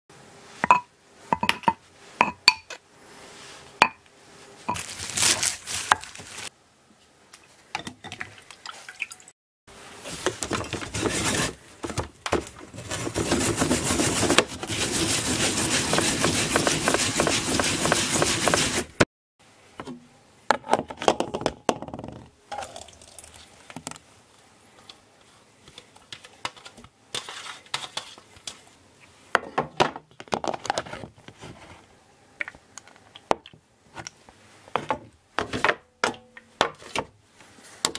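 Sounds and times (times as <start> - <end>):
radish grated on metal grater: 10.7 - 11.6, 12.8 - 19.0.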